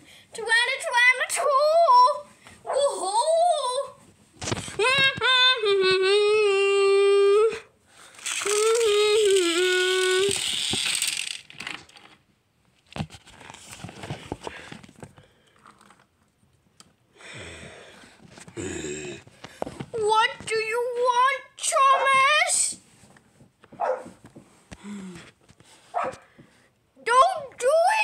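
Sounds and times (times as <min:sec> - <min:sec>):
rustling handling noise: 0:10.3 - 0:16.6.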